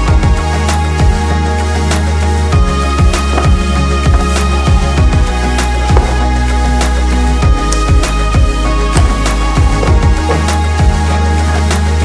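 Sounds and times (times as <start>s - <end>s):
music with deep bass beat: 0.0s - 12.0s.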